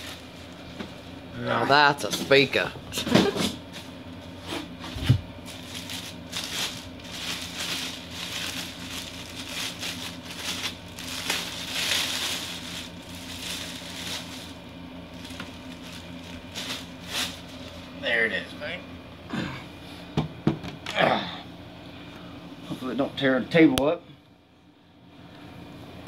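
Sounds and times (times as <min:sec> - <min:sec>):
plastic bag crinkling: 0:00.0 - 0:00.6, 0:05.4 - 0:17.9.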